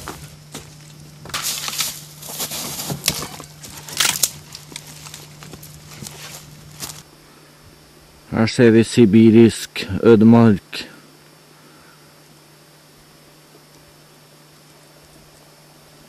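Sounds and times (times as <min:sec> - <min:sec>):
sticks being handled: 0:00.0 - 0:07.0
campfire crackling and snapping: 0:00.0 - 0:07.1.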